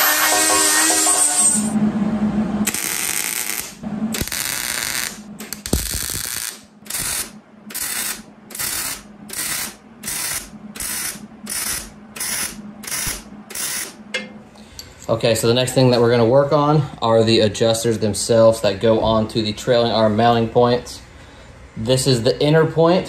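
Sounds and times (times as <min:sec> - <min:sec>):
welder arc crackling: 0:02.6 - 0:14.0.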